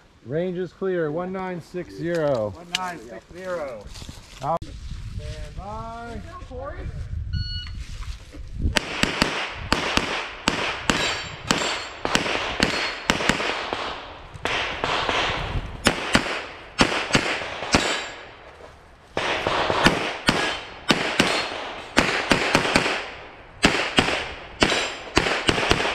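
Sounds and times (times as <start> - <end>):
shot timer beep: 7.4 - 7.8
pistol shots echoing: 8.8 - 18.4, 19.2 - 25.9.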